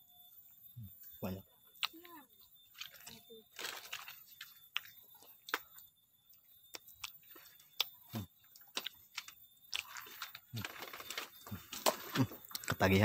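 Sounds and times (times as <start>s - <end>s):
clicks and crunches of dry husks: 2.7s - 5.8s, 6.7s - 12.8s.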